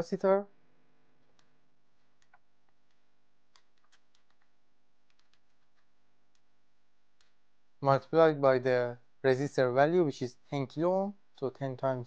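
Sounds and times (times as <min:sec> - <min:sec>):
calculator keys clicking: 0:05.1 - 0:05.8.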